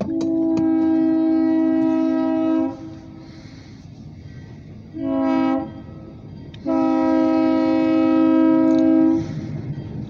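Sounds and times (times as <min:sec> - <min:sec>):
locomotive air horn: 0:00.0 - 0:03.5, 0:04.9 - 0:05.9, 0:06.6 - 0:09.5
locomotive rumble: 0:00.0 - 0:10.0.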